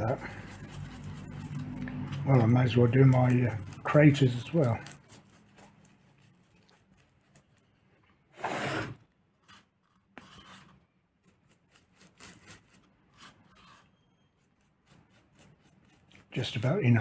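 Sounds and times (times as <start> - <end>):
paintbrush scrubbing: 0.0 - 7.8, 9.3 - 17.0
brush scraping in pot: 0.0 - 17.0.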